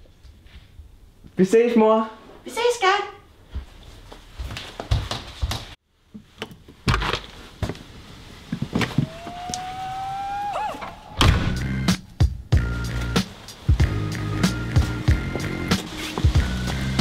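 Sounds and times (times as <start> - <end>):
door banging shut: 10.8 - 11.7.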